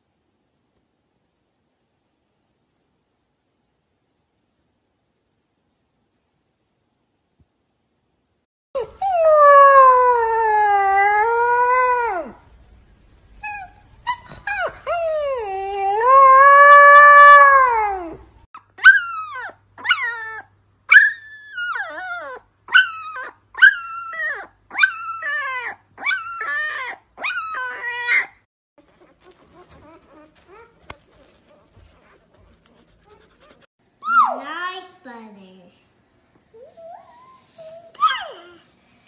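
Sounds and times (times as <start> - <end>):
puppy howling: 8.8 - 12.4, 13.4 - 18.2, 18.8 - 32.1
newborn puppy squealing: 18.6 - 32.2, 33.0 - 34.4, 36.6 - 38.6.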